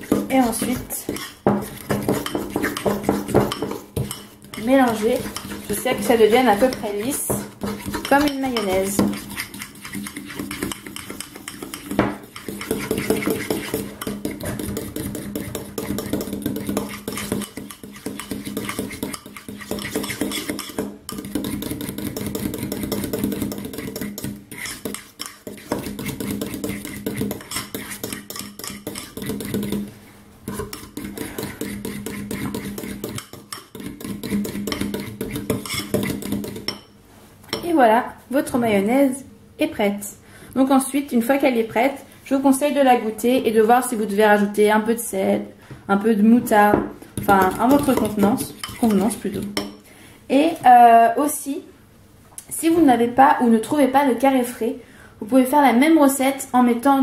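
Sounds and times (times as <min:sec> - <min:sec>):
fork beating mixture in a bowl: 0:00.0 - 0:37.7, 0:46.4 - 0:50.9.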